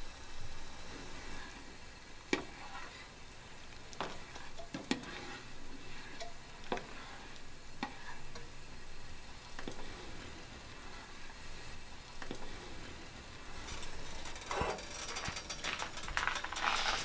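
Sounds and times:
low steady water hiss: 0.0s - 17.0s.

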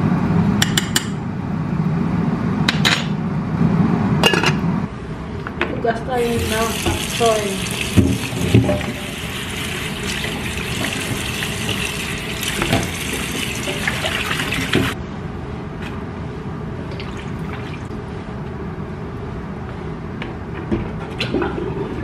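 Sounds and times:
tap running into steel sink: 7.9s - 9.1s, 10.8s - 15.0s.

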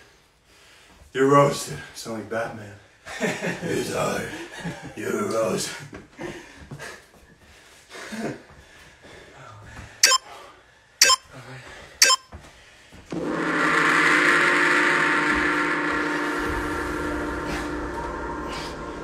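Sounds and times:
short timer beeps: 10.0s - 10.2s, 11.0s - 11.2s, 12.0s - 12.3s.

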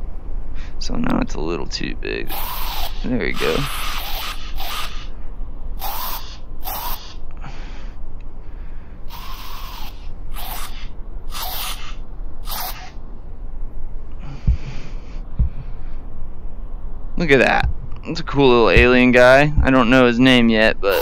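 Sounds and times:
spray paint hiss: 2.3s - 5.1s, 5.8s - 7.2s, 9.1s - 12.9s
low thumps: 13.0s - 16.9s, 17.6s - 18.1s.

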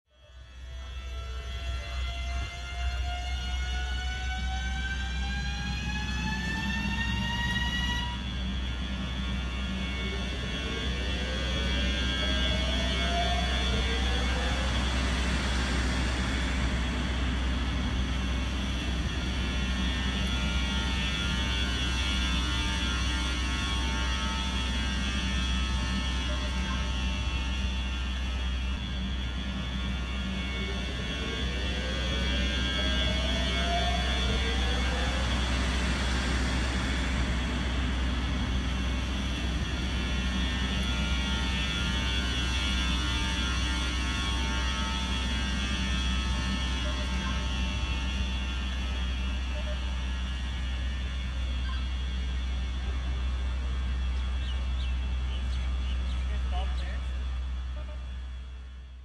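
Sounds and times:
electric locomotive rolling past: 0.4s - 58.7s.

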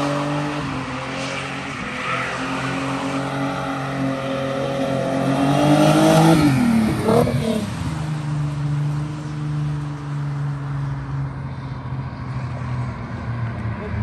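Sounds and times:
car engine revving: 0.0s - 9.9s.

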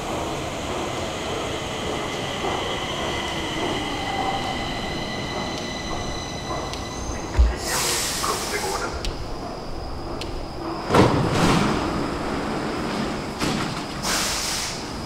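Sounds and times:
metro train rumbling: 0.0s - 15.0s
loud thump: 7.3s - 7.7s
loud hiss: 7.4s - 9.0s.

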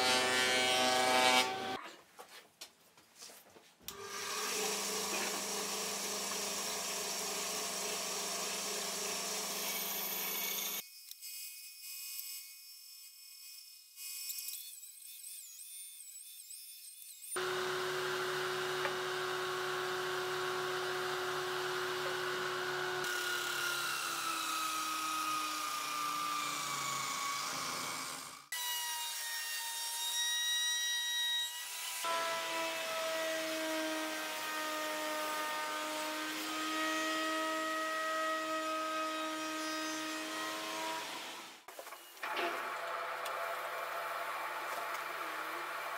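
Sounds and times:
wood router whining: 0.0s - 1.8s, 3.9s - 30.2s, 31.6s - 45.9s.

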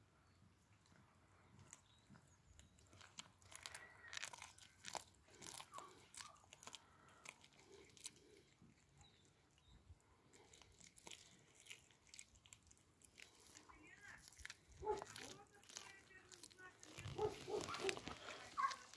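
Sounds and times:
cat crunching fish: 0.8s - 18.9s.

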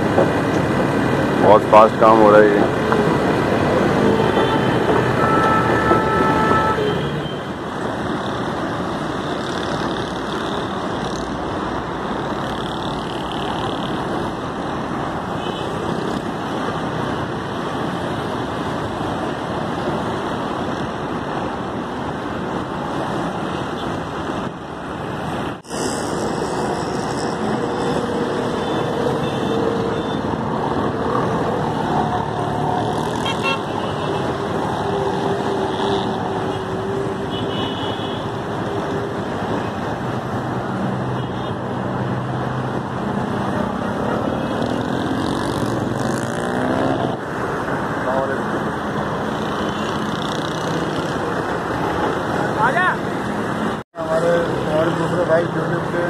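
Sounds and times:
passing cars and trucks: 0.0s - 56.0s
vehicle horn: 4.0s - 7.4s, 28.6s - 30.2s, 33.2s - 34.3s, 37.3s - 38.3s.

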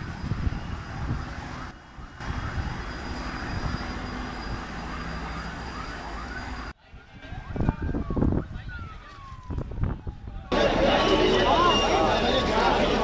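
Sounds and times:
low engine-like drone: 10.5s - 13.0s.

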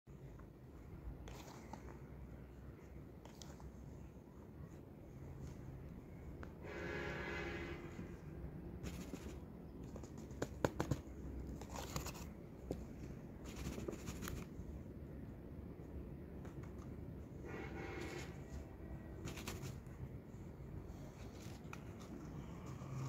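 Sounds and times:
fingers scratching potting mix: 8.8s - 12.4s, 13.3s - 14.6s, 18.0s - 20.0s
paper rustling: 8.8s - 12.4s, 19.2s - 19.9s, 21.0s - 23.0s.

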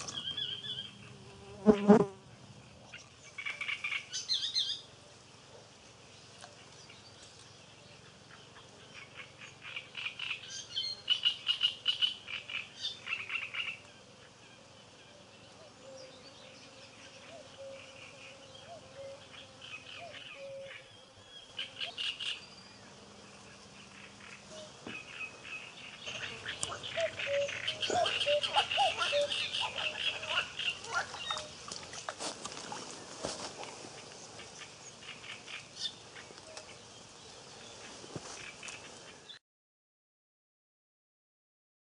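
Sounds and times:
frogs croaking: 23.2s - 31.8s.

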